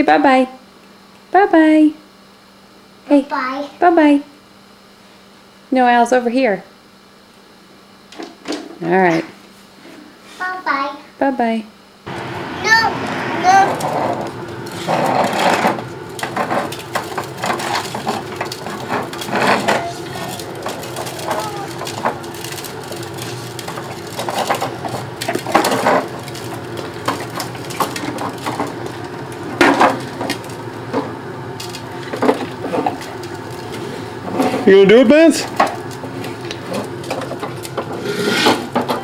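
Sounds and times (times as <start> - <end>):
toy wheels rolling over concrete: 12.1 - 39.0.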